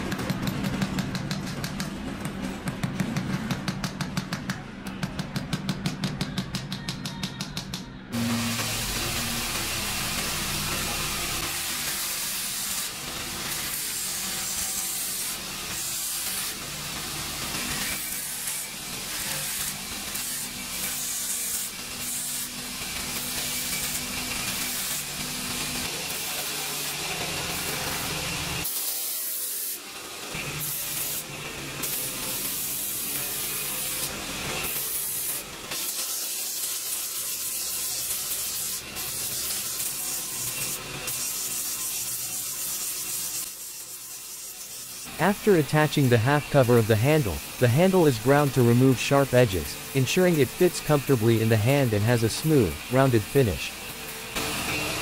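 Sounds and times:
bench grinder motor hum: 0:08.1 - 0:45.2, 0:49.5 - 0:55.0.

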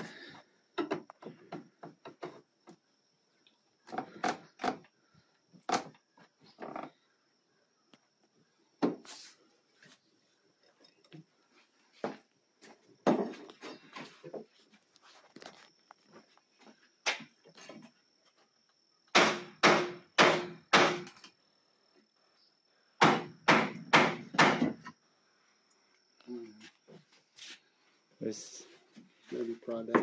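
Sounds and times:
hammer striking wood block: 0:19.1 - 0:21.1, 0:23.0 - 0:24.8.

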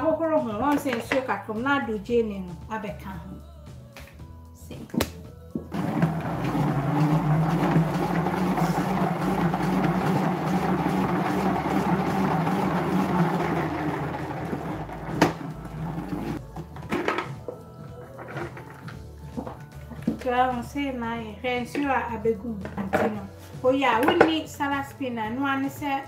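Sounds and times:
salad spinner whirring: 0:05.8 - 0:16.4.

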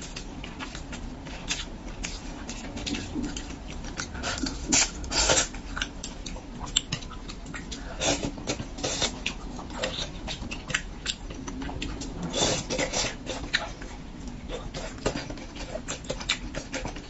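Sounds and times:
wet chewing and smacking: 0:00.0 - 0:17.0.

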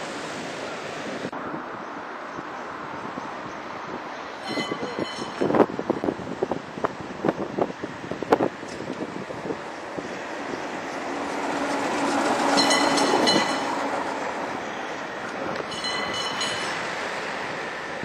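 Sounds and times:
tram rumbling on rails: 0:00.0 - 0:18.0
short high-pitched squeals: 0:04.4 - 0:05.5.

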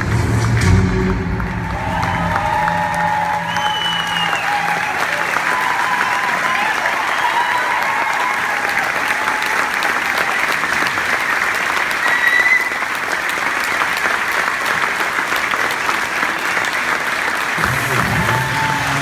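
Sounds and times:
audience applauding: 0:00.0 - 0:19.0
short high whistle: 0:03.5 - 0:04.8.

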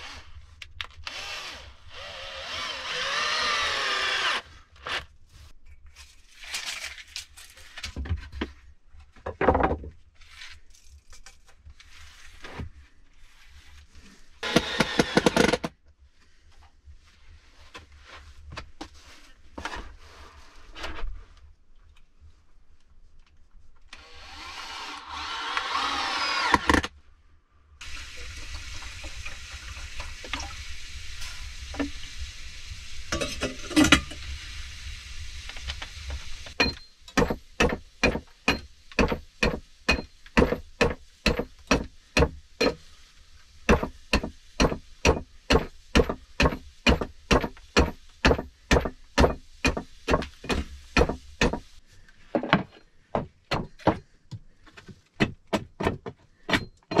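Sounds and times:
hand tool striking wooden boards: 0:36.6 - 0:42.8, 0:43.7 - 0:51.7, 0:52.4 - 0:54.1, 0:55.1 - 0:57.0.

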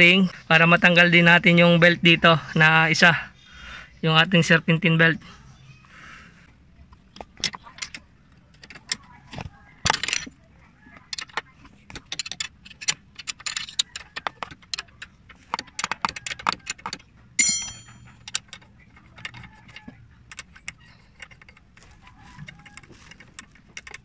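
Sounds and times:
wrench clicking on metal bolts: 0:12.0 - 0:15.0, 0:15.8 - 0:21.6
loud metal clink: 0:17.4 - 0:18.2.

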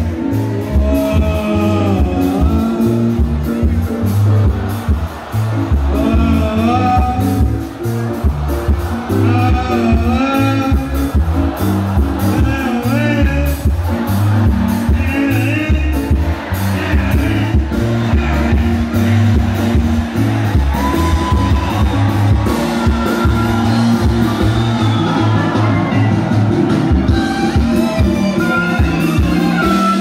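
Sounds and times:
bass line: 0:00.0 - 0:30.0.

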